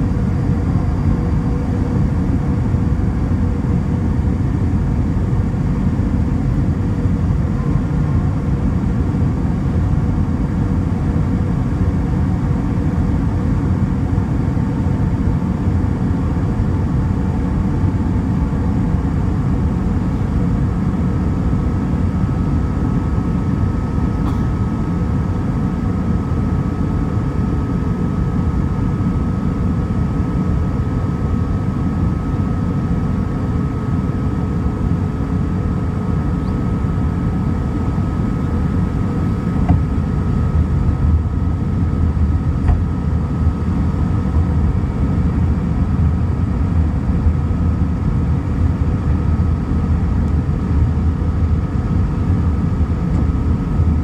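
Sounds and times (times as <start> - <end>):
airplane engine and airflow rumble: 0.0 - 54.0
thin steady whine: 0.0 - 54.0.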